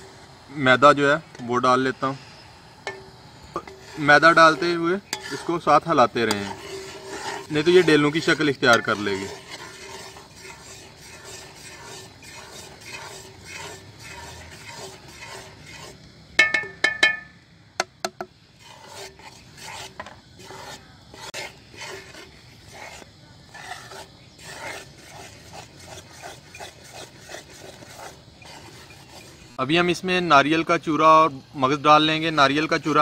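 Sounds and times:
metal spoon scraping a pan: 2.8s - 17.3s, 18.6s - 29.6s
metal clinks on a pan: 16.4s - 17.4s.

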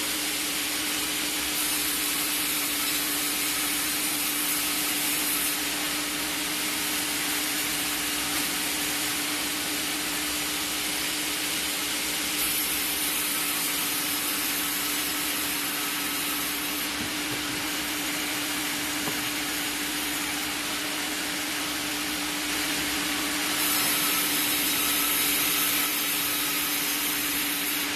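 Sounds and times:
band saw cutting log: 0.0s - 27.9s
machine motor hum: 16.3s - 21.5s.

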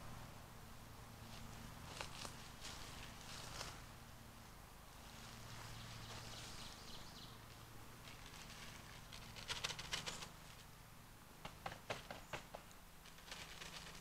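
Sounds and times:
spawn pattering onto mulch: 1.2s - 3.9s, 5.0s - 10.7s, 11.4s - 14.0s.

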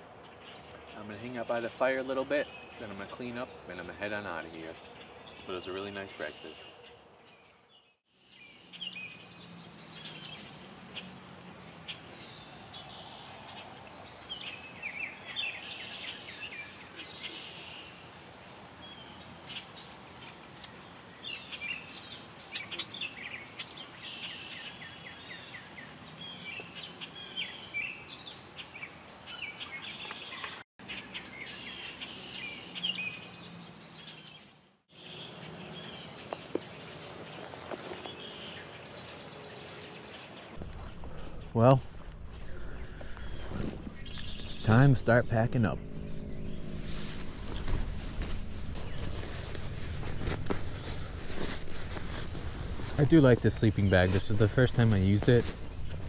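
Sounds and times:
steady outdoor hiss: 0.0s - 7.4s, 8.1s - 56.0s
songbirds chirping and trilling: 0.0s - 56.0s.

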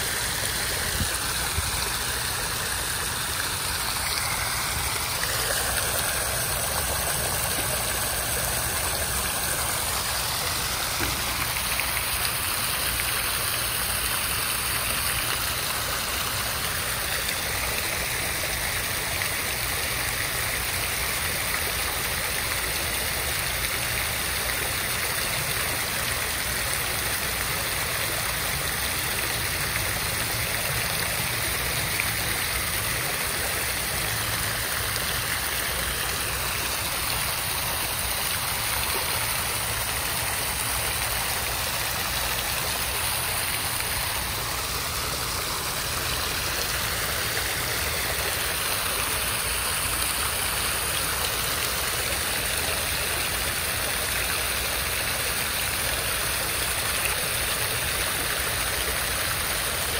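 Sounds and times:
water fountain splashing: 0.0s - 59.9s.

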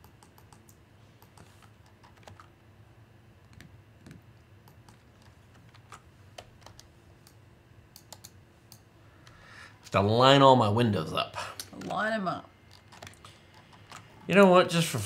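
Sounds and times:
faint keyboard typing: 0.0s - 2.5s, 3.4s - 9.4s, 12.7s - 14.3s.

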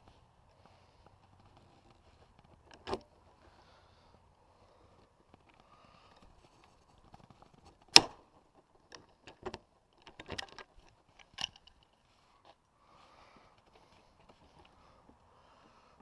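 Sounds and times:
tools and parts clicking and knocking: 8.8s - 12.0s.

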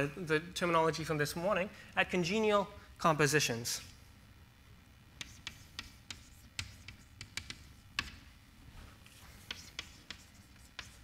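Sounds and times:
chalk tapping on blackboard: 5.2s - 8.2s, 9.2s - 11.0s.

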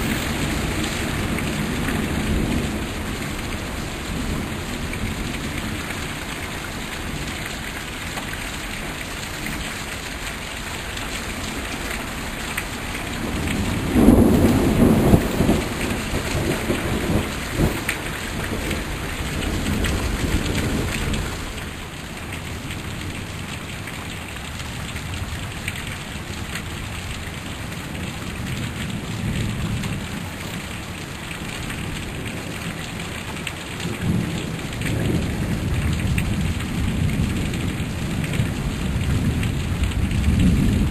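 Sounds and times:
thunder rumbling: 0.0s - 5.3s, 13.1s - 21.7s, 33.8s - 40.9s
heavy rain: 0.0s - 40.9s.

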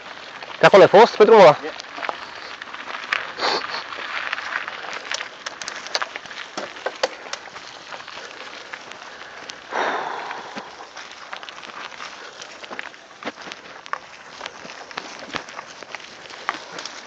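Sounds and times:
bike tyres crunching on gravel: 0.0s - 17.0s
sharp clicks and rattles: 4.8s - 7.6s.

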